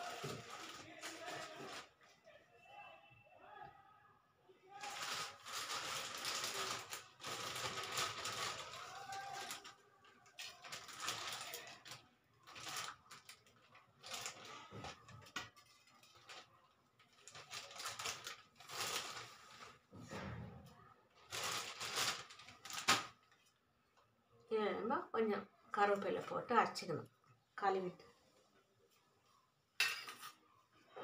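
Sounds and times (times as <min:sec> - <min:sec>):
plastic bag rustling: 0:00.0 - 0:02.1, 0:04.7 - 0:20.0, 0:21.2 - 0:23.5.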